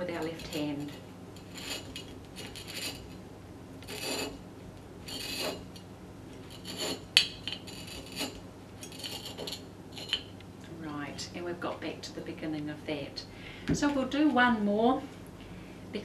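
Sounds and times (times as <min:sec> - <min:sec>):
cutter wheel rasping on glass bottle: 0:00.1 - 0:03.2, 0:03.8 - 0:04.4, 0:05.0 - 0:05.8, 0:06.5 - 0:10.3.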